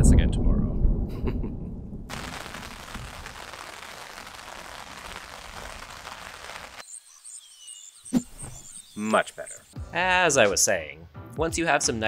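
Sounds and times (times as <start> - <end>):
rain falling on gravel: 2.1 - 6.8.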